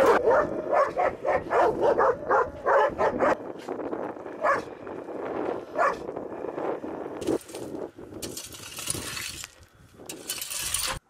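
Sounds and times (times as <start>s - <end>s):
dogs barking and yipping: 0.0s - 3.4s, 4.4s - 4.8s, 5.8s - 6.1s.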